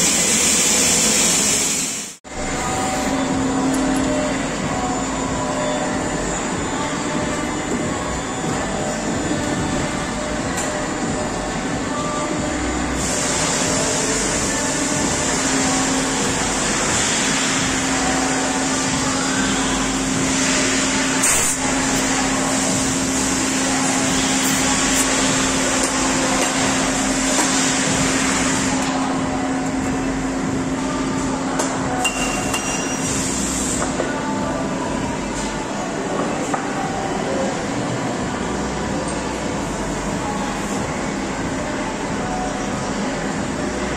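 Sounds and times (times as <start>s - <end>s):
machine hiss: 0.0s - 7.3s, 12.8s - 29.5s
machine hum: 0.0s - 32.1s.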